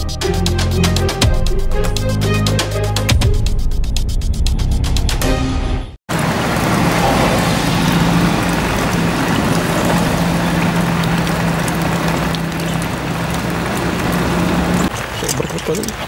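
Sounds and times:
rain pattering: 6.1 - 16.0
low hum: 6.2 - 14.9.

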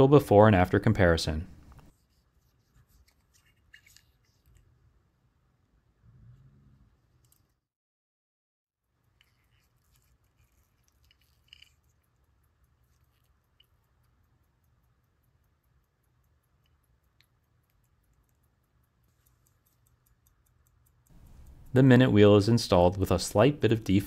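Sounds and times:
soft clicks: 10.8 - 23.1.

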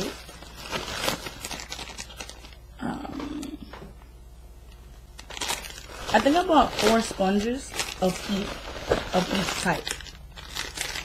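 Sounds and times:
plastic packaging crinkling: 0.0 - 2.7, 5.1 - 11.0
person humming: 2.7 - 3.8.

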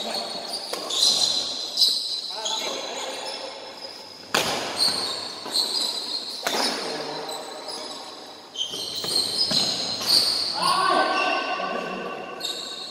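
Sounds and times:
shoes squeaking on court: 0.0 - 10.7, 12.2 - 12.9
racket hitting shuttlecock: 4.2 - 5.7.

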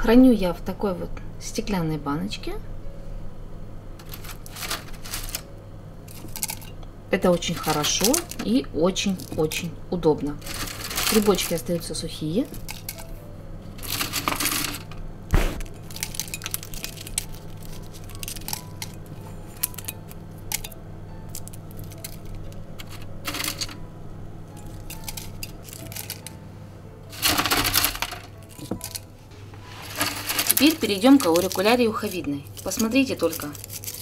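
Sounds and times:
dried mushrooms crackling in a jar: 4.0 - 5.5, 6.1 - 15.0, 15.6 - 23.8, 24.5 - 26.4, 27.1 - 29.1, 29.7 - 34.0.

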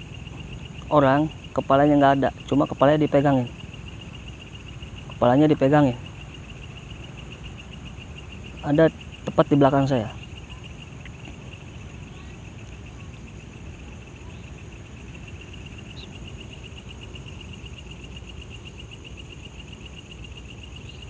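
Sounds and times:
crickets trilling: 0.0 - 21.0
high-pitched insect whine: 0.0 - 21.0.

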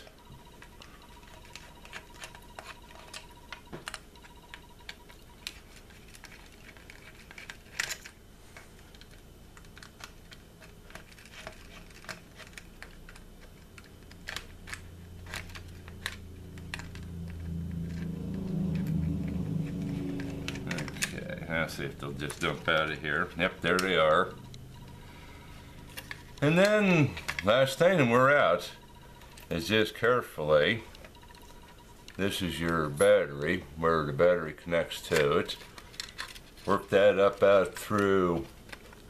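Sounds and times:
low hum: 12.8 - 39.0.

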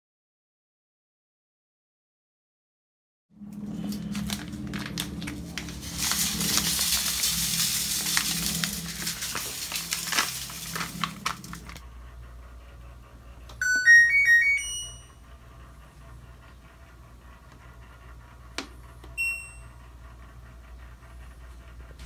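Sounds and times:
powder pouring hiss: 4.1 - 11.8
washer power-on chime: 13.6 - 15.3, 19.2 - 19.8.

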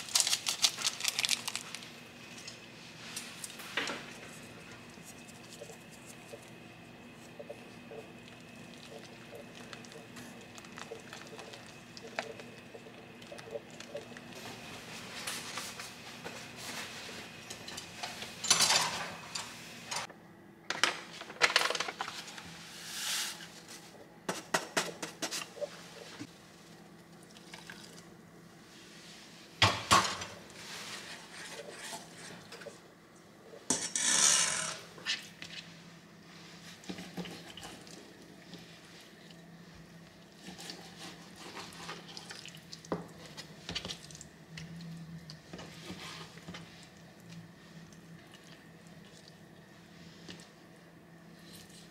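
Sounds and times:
utensils clinking on steel bowl: 17.5 - 19.5.

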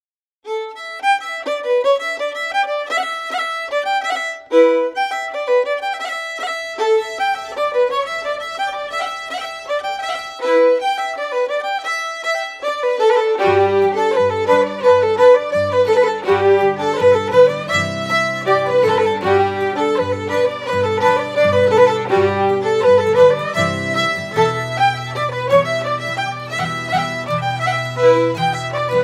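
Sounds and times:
fiddle playing lively tune: 0.5 - 29.0
lower accompaniment: 12.2 - 29.0.

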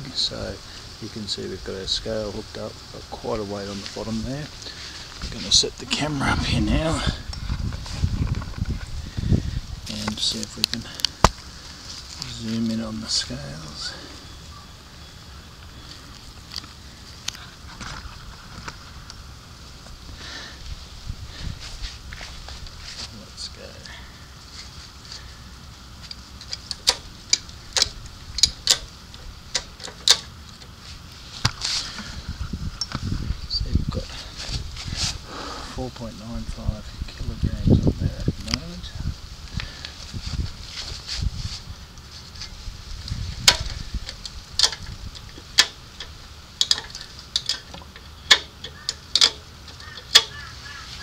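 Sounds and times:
sharp irregular clicks: 26.0 - 30.7, 43.4 - 50.5.

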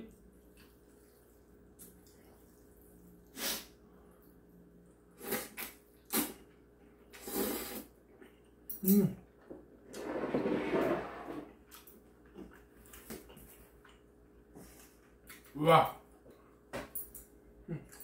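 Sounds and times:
slurping noodles: 7.1 - 7.9, 9.9 - 11.5
chewing: 11.6 - 15.5.

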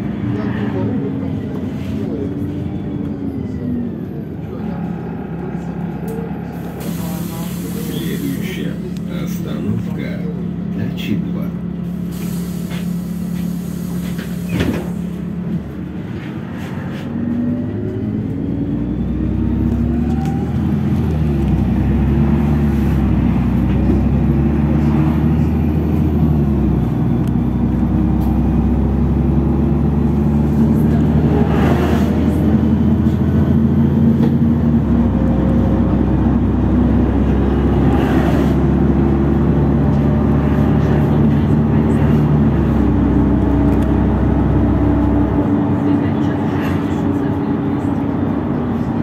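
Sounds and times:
bus diesel engine: 0.0 - 49.0
road noise: 0.0 - 49.0.

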